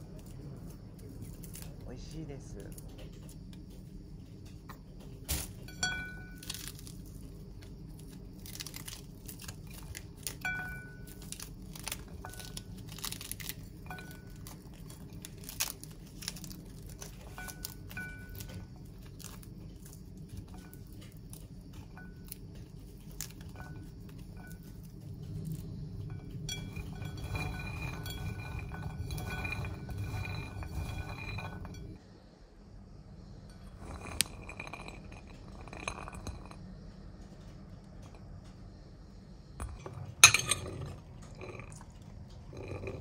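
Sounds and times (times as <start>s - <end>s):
food crunching and rustling: 0.0s - 32.0s
steady low hum: 0.0s - 43.0s.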